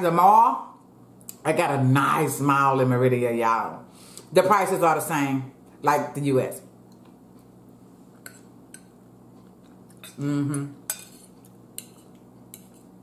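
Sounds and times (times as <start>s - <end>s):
fork clicking on ceramic bowl: 10.9s - 12.8s.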